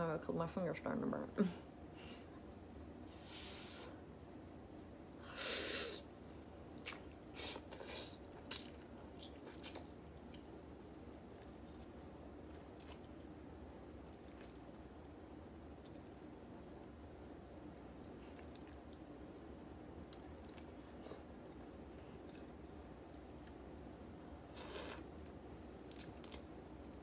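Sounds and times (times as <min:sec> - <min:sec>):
wet chewing: 0:06.2 - 0:13.4, 0:14.0 - 0:15.0, 0:15.7 - 0:17.0, 0:17.6 - 0:27.0
noodle slurp: 0:24.5 - 0:25.1.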